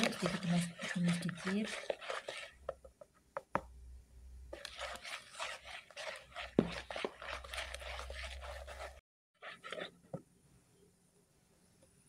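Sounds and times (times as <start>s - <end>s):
spatula scraping plastic bowl: 0.0s - 2.9s, 4.5s - 10.1s.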